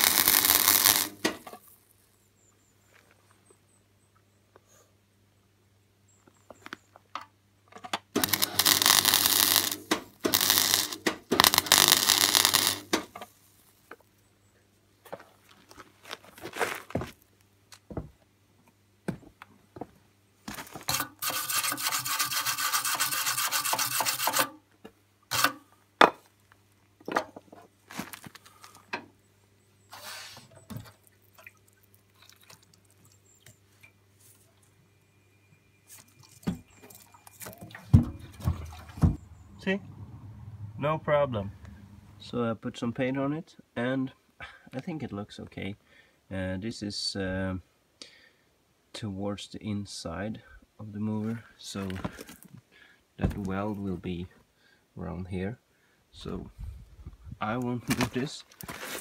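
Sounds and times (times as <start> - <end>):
welder arc crackling: 0.0 - 1.6, 8.2 - 13.2.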